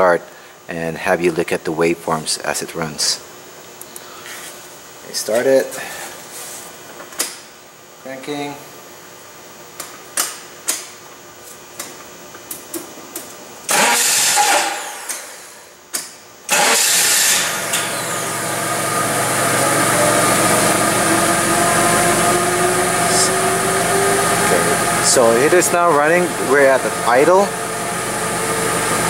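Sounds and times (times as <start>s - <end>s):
engine cranking and idling: 13.7s - 15.3s, 16.5s - 29.0s
engine whine: 16.5s - 29.0s.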